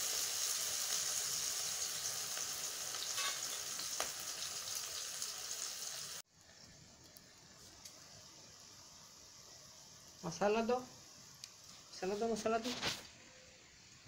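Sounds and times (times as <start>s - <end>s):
onions sizzling in hot oil: 0.0s - 6.3s, 7.5s - 12.8s.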